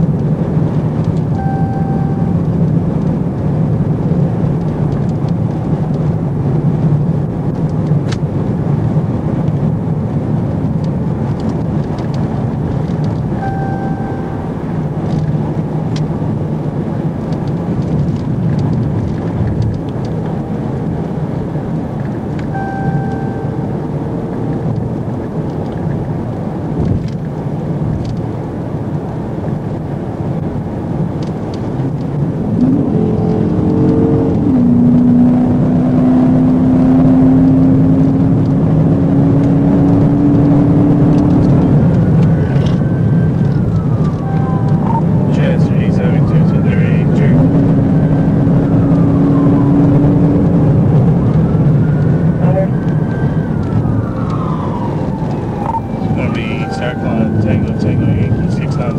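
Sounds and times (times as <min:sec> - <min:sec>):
car engine and tyre noise: 0:00.0 - 0:58.9
short electronic beeps: 0:01.4 - 0:02.4, 0:13.4 - 0:14.6, 0:22.5 - 0:23.7, 0:44.2 - 0:45.1.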